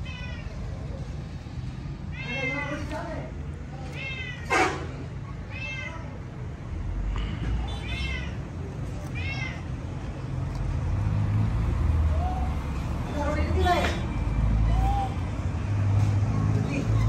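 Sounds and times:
cat meowing: 2.1s - 2.9s, 3.9s - 4.6s, 5.4s - 6.2s, 7.7s - 9.8s.

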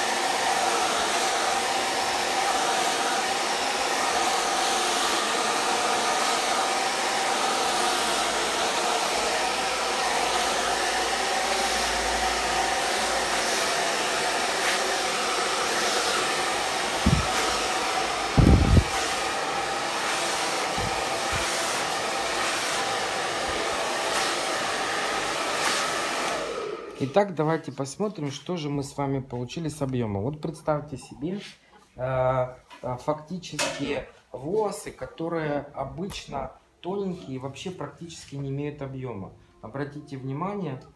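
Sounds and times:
hair dryer blowing: 0.0s - 27.3s
low thumps: 16.9s - 17.5s, 18.3s - 19.0s.

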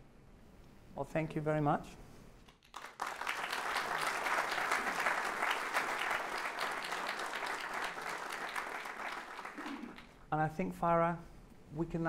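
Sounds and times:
audience applauding: 2.6s - 10.2s.

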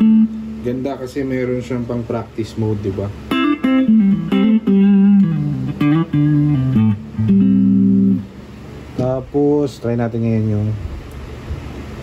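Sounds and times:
clean electric guitar: 0.0s - 1.2s, 3.2s - 9.4s.

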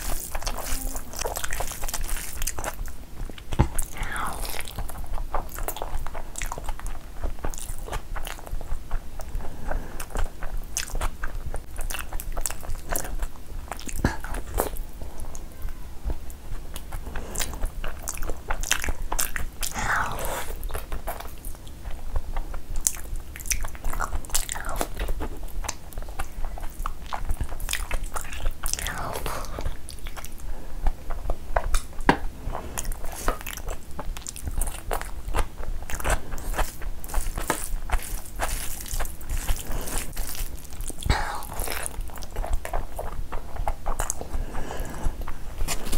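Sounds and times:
close chewing: 0.0s - 45.9s
fingers mixing rice on plate: 34.2s - 43.8s.

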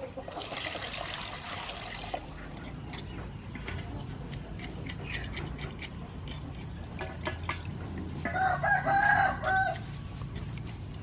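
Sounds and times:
knife scraping fish scales: 3.7s - 7.0s
rooster crowing: 8.3s - 9.8s.

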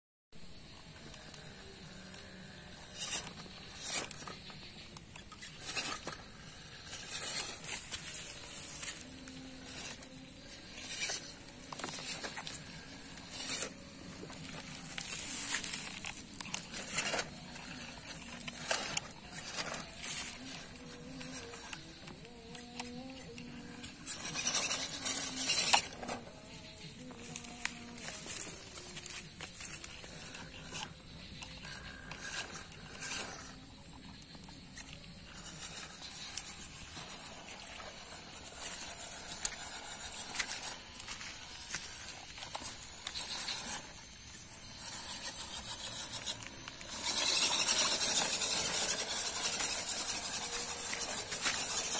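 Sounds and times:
faint low motor whir: 0.4s - 51.9s
high-pitched whine: 0.4s - 51.9s
steady high-pitched hiss: 0.4s - 51.9s
tyres scrabbling on soil and grit: 2.8s - 51.9s.

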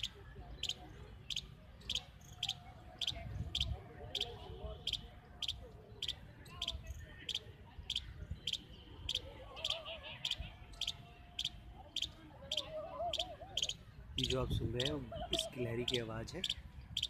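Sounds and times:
squirrel chipping calls: 0.0s - 17.0s.

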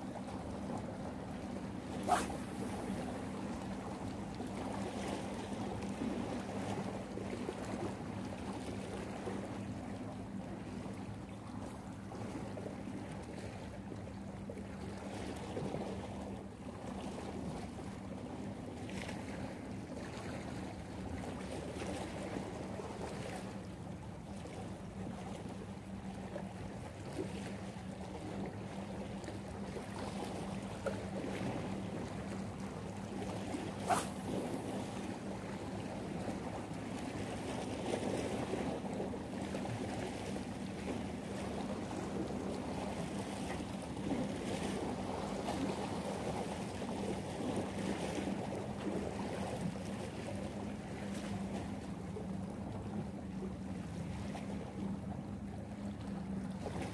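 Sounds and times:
light wind: 0.0s - 56.9s
steady low hum: 0.0s - 56.9s
waves lapping against rocks: 33.1s - 36.4s.

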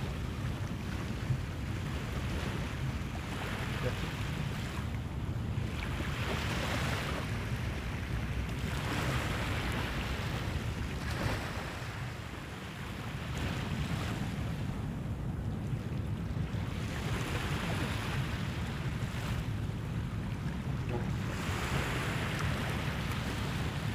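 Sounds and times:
waves washing onto shore: 0.0s - 23.9s
wind rumble on microphone: 0.0s - 23.9s.

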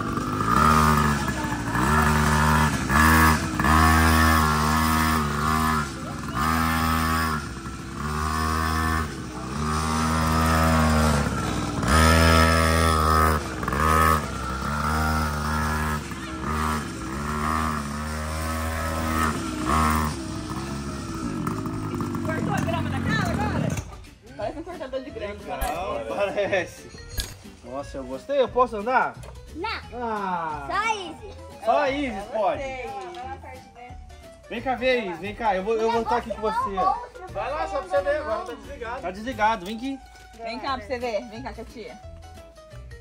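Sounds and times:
small two-stroke engine revving: 0.0s - 24.0s.

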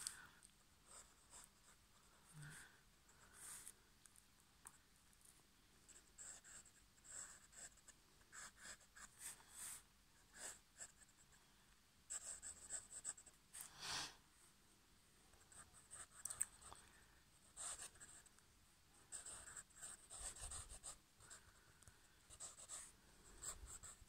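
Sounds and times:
pen scratching on paper: 6.2s - 11.2s, 12.1s - 13.7s, 17.5s - 18.2s, 19.1s - 21.4s, 22.3s - 24.0s.

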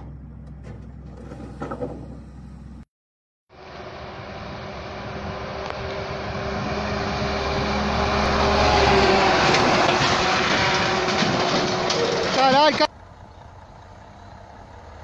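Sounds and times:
truck passing by: 3.5s - 15.0s
trailer knocks: 7.4s - 12.9s.

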